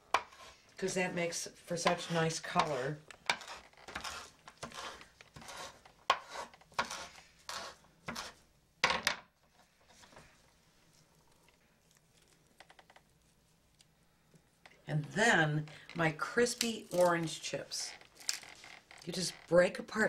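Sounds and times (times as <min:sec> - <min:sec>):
knife chopping on wooden board: 0:03.3 - 0:08.3.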